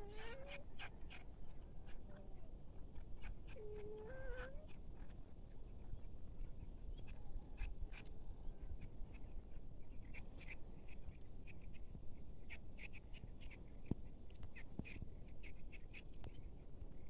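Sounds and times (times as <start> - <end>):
small birds chirping: 0.0 - 17.0.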